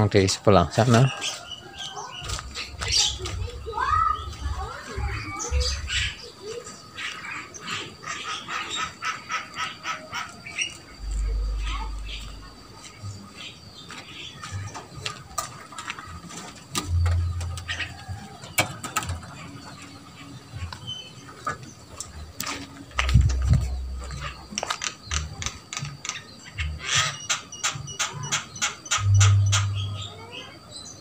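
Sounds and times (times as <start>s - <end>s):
footsteps: 2.2s - 4.6s, 22.4s - 25.3s
sharp clicks and ticks: 22.4s - 26.2s.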